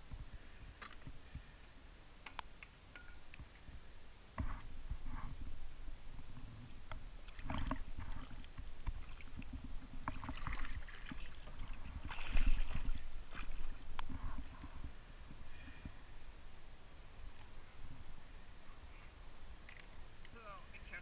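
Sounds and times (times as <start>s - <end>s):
water sloshing and splashing: 6.9s - 14.9s.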